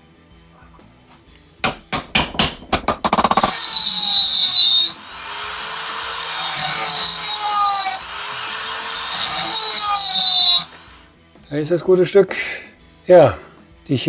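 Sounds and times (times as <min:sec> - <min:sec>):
sharp hammer blows: 0:01.6 - 0:10.8
rotary tool whining into metal: 0:02.9 - 0:11.1.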